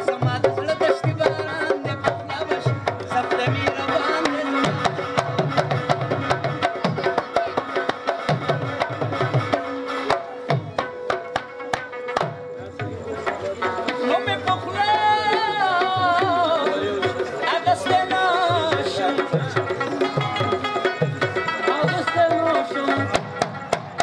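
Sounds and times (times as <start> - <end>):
hand drums: 0.0 - 24.0
harmonium chords and melody: 0.0 - 24.0.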